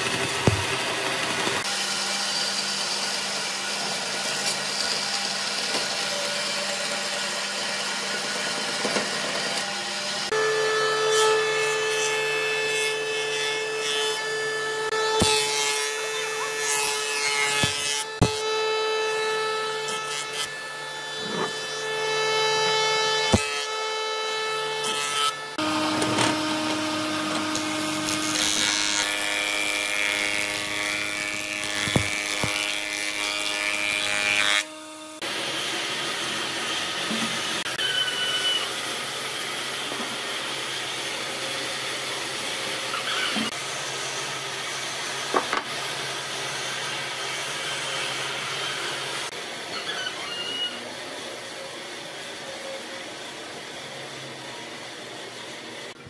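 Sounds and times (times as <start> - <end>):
jointer planing wood: 0.0 - 43.6.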